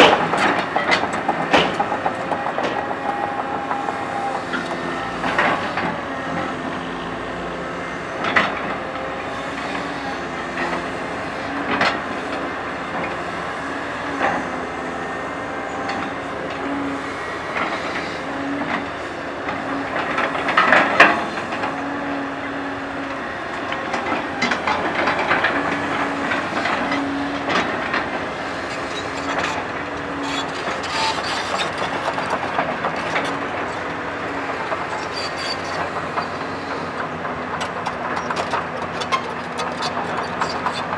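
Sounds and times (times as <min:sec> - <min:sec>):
excavator diesel engine running: 0:00.0 - 0:40.9.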